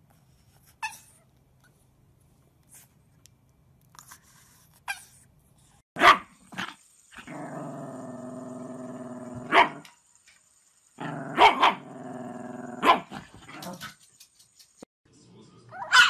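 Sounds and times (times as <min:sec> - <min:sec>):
small dogs barking: 0:06.0 - 0:07.7, 0:09.2 - 0:09.9, 0:11.0 - 0:14.0, 0:15.7 - 0:16.0
dog growling: 0:06.6 - 0:09.8, 0:11.0 - 0:13.8.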